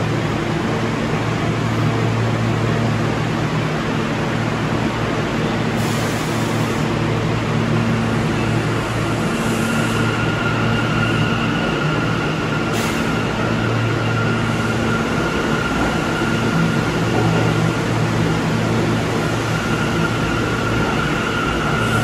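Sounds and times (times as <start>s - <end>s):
subway train motor hum: 0.0s - 22.0s.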